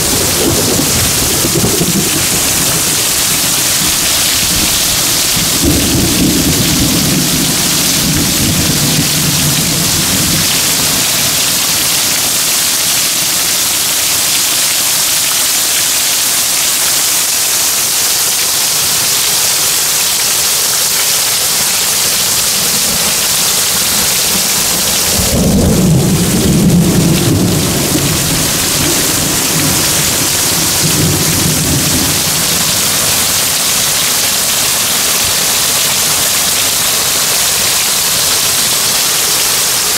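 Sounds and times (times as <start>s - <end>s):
thunder rumbling: 0.0s - 12.5s, 22.1s - 37.1s
heavy rain pouring: 0.0s - 39.9s.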